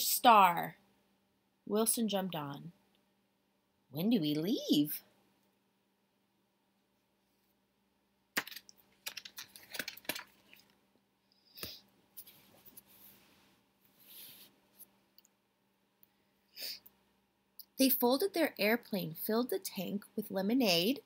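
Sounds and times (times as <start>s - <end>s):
paper rustles: 8.4s - 10.7s
book page turning: 8.4s - 10.8s.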